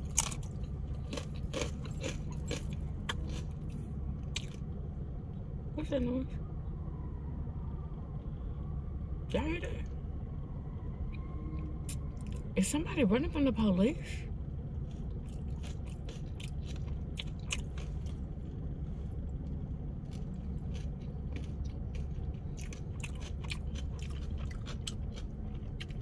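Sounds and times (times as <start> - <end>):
crunchy chips chewing: 0.0 - 4.7, 14.7 - 18.5, 19.1 - 26.0
low hum inside car: 0.0 - 26.0.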